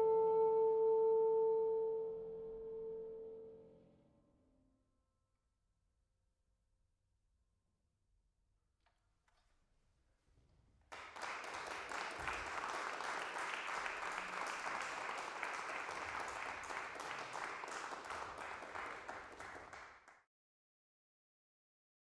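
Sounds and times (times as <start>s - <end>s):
audience applauding: 10.9s - 20.2s.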